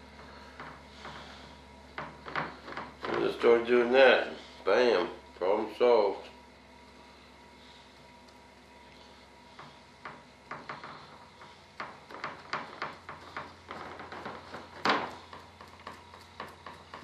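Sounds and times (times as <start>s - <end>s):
hand tool tapping and dabbing: 9.5s - 17.0s.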